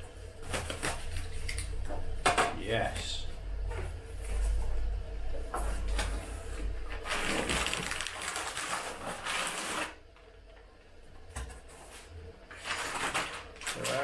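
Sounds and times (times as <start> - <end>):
plastic wrapping rustling: 5.7 - 10.0, 12.5 - 14.0.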